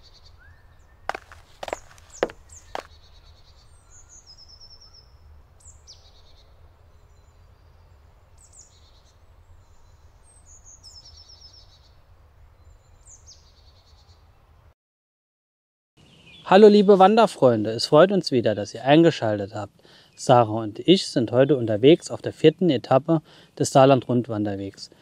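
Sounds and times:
songbird singing trills: 0.0s - 12.0s, 12.6s - 14.3s, 16.0s - 17.1s.

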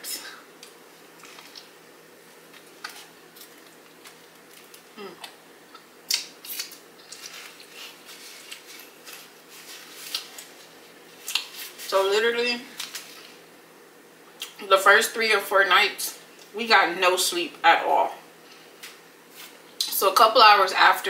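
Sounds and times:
crusty bread crackling: 1.1s - 5.0s, 6.1s - 13.5s.

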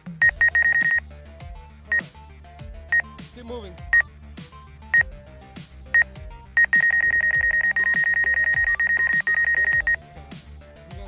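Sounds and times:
background music with steady beat: 0.0s - 11.0s
high-pitched warning beeps: 0.2s - 1.0s, 6.0s - 10.0s.

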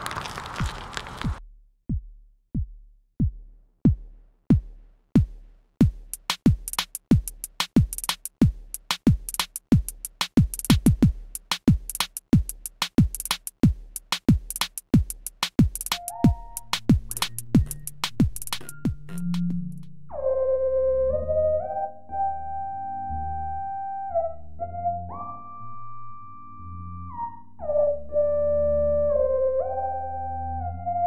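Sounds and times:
drum machine kick beat: 1.4s - 19.9s
hi-hats: 5.2s - 19.9s.

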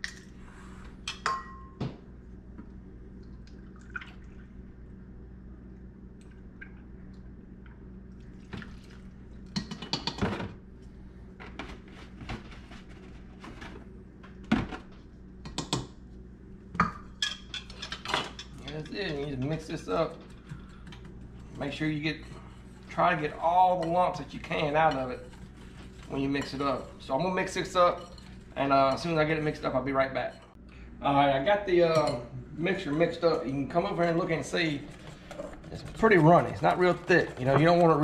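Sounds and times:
kitchenware clinking on counter: 1.1s - 1.8s.

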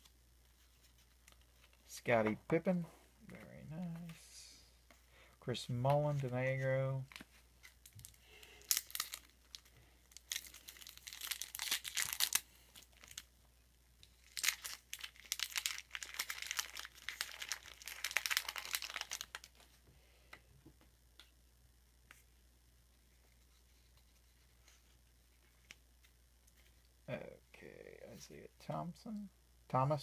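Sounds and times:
wrapper tearing and crinkling: 7.1s - 13.3s, 14.1s - 19.7s.

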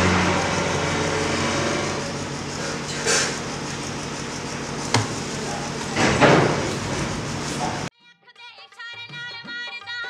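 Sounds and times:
low machine hum: 0.0s - 7.9s.

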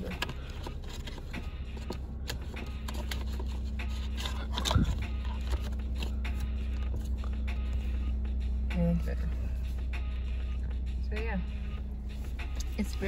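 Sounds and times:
hand handling small items: 0.0s - 6.5s
low car cabin hum: 0.0s - 13.0s.

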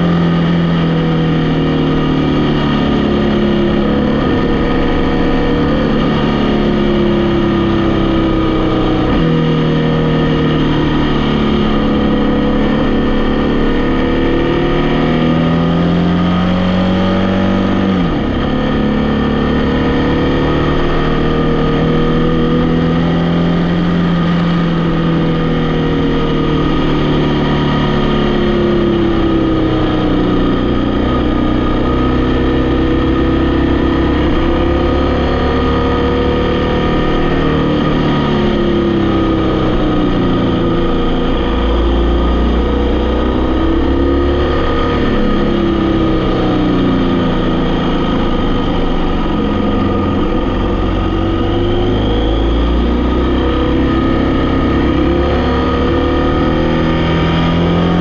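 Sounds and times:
vehicle engine revving while driving: 0.0s - 58.0s.

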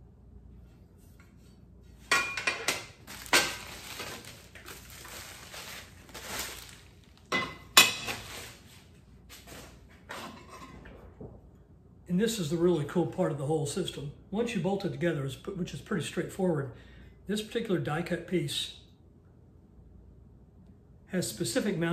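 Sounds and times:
packing paper rustling: 2.9s - 7.3s, 8.1s - 9.8s.

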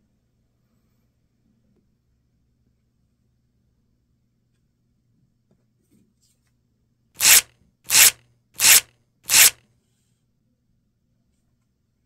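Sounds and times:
aerosol can spraying cream: 7.2s - 9.6s.

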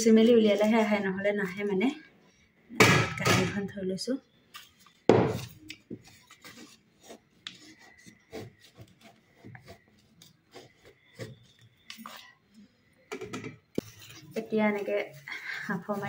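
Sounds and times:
stick scraping inside bamboo tube: 5.4s - 12.4s, 13.7s - 16.0s.

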